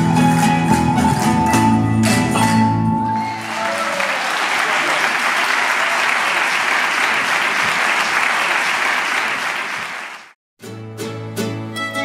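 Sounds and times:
plucked and bowed string music: 0.0 - 3.2, 10.6 - 12.0
audience applauding: 3.1 - 10.4.

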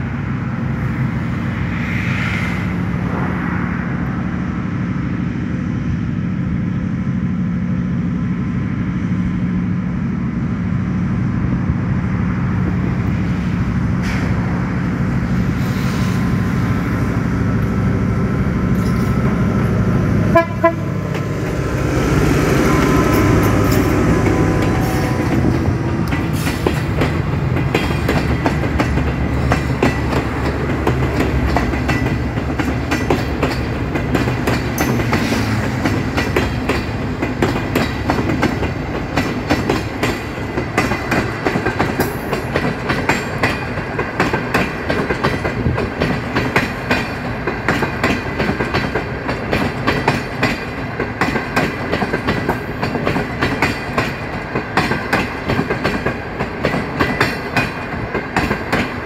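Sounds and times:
diesel locomotive engine humming: 0.0 - 59.0
train wheels clacking over rail joints: 20.3 - 59.0.

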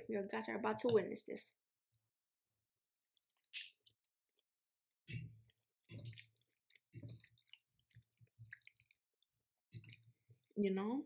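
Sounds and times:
wet chewing: 3.0 - 4.5, 5.4 - 10.6.

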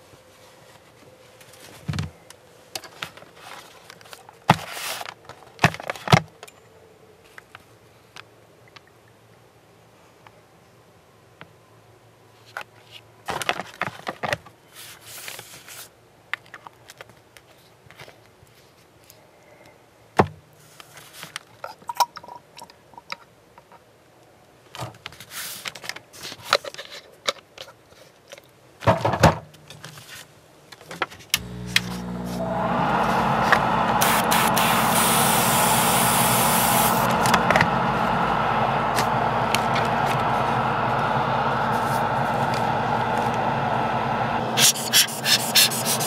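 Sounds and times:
air compressor humming: 31.4 - 46.0
airbrush hissing: 31.7 - 38.2, 44.6 - 46.0.

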